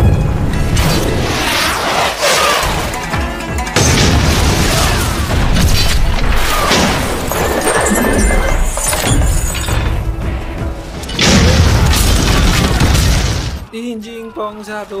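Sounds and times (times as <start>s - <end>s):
action film music: 0.0s - 15.0s
crashes and booms: 3.8s - 7.4s, 11.1s - 13.7s.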